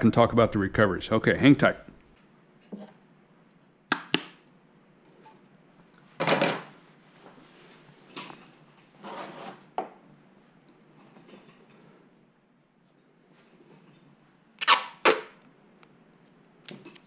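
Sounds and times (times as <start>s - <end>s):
rustling scrape: 8.8s - 9.7s.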